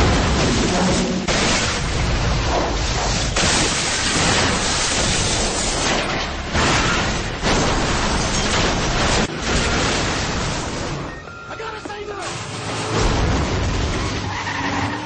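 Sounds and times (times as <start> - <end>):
car crash roar: 12.2 - 15.0.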